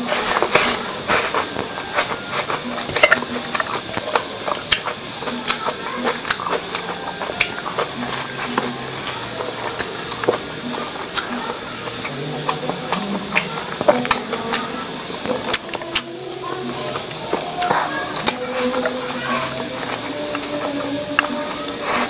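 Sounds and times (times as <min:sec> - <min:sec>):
wet chewing of noodles: 0:00.0 - 0:22.0
lip smacks and mouth clicks: 0:01.4 - 0:10.5, 0:11.1 - 0:16.2.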